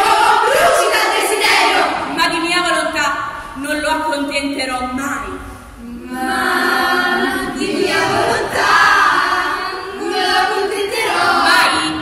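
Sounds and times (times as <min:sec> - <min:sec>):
young voices singing choral song: 0:00.0 - 0:02.2, 0:05.7 - 0:12.0.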